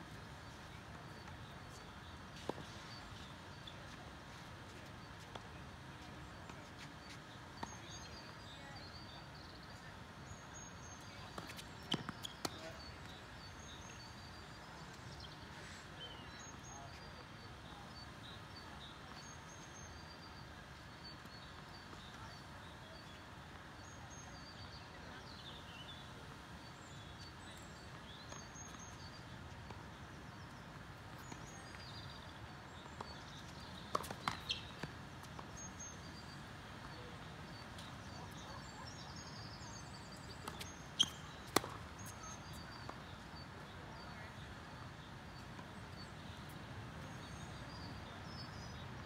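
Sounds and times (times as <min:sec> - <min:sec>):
outdoor background noise: 0:00.0 - 0:49.0
tennis ball struck by rackets: 0:33.9 - 0:34.7, 0:40.4 - 0:41.8.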